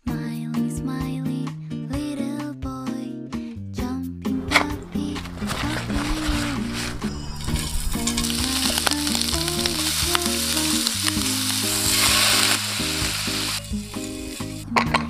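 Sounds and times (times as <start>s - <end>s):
shrimp sizzling in hot oil: 7.5s - 14.7s.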